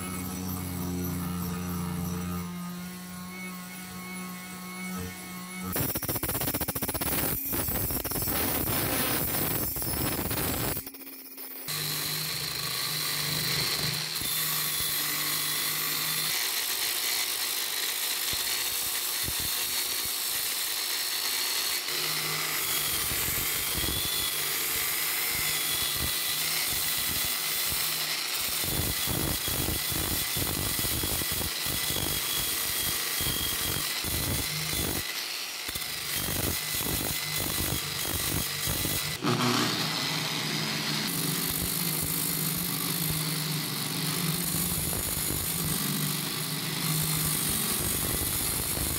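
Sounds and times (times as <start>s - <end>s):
grinding disc scraping metal: 0.0s - 18.0s, 32.2s - 48.9s
angle grinder whining: 0.0s - 48.9s.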